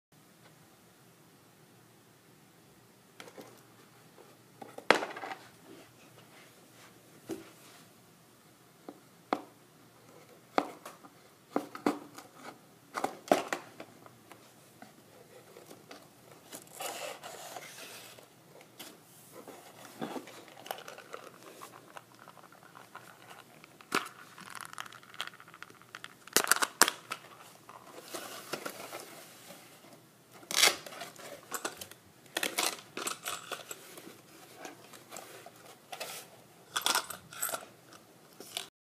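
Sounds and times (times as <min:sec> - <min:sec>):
plastic and cardboard rustling: 0:10.3 - 0:36.5.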